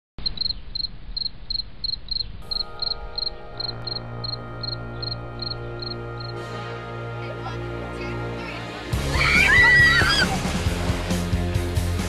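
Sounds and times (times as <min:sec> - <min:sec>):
cricket chirping: 0:00.2 - 0:06.4
sustained music chords: 0:02.4 - 0:09.4.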